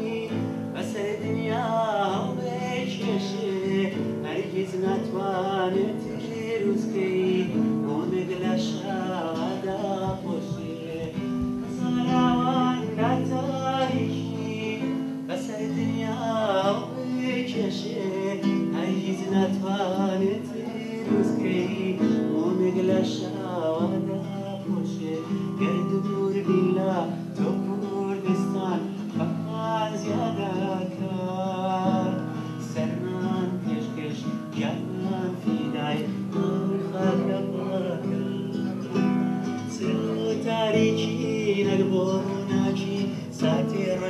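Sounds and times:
acoustic guitar chords: 0.0 - 44.0
man singing: 0.0 - 44.0.

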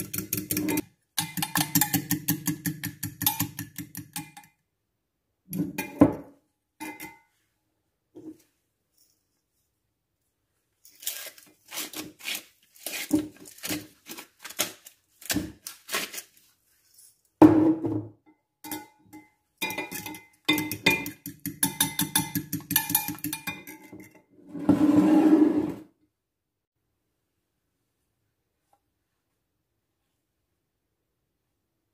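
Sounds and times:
fork beating egg in glass jug: 0.0 - 4.5, 19.6 - 23.8
jug scraping on worktop: 24.4 - 25.9.

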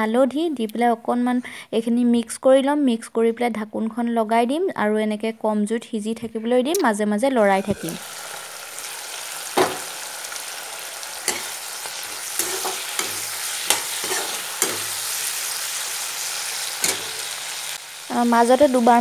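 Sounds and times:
greens sizzling in hot oil: 7.4 - 19.0
metal spatula scraping pan: 11.0 - 17.6.

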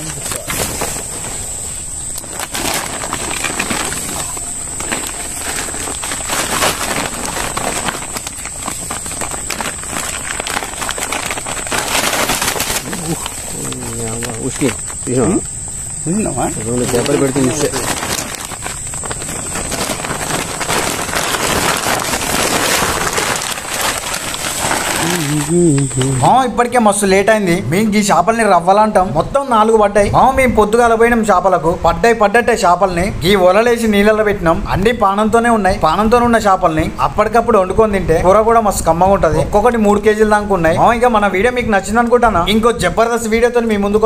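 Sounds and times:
plastic sack rustling and crackling: 0.0 - 27.9
night insects chirring: 0.0 - 44.0
steady high-pitched whine: 0.0 - 44.0.

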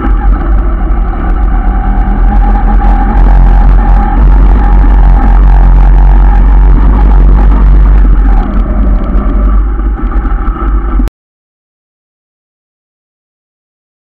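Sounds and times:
motorcycle engine rumble: 0.0 - 11.1.

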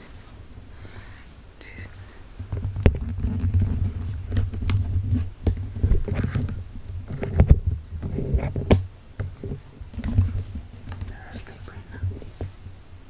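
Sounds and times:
small clicks and knocks: 2.4 - 11.2
camera handling rumble: 2.4 - 11.3.

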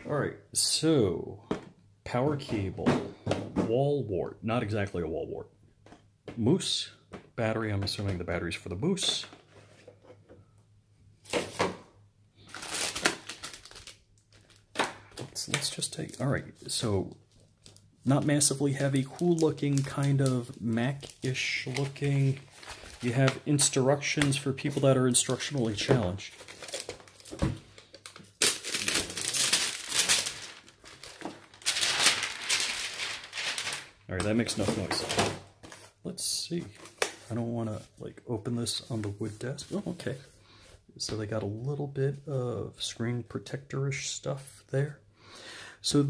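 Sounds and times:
plastic packaging crinkling: 12.4 - 35.9.

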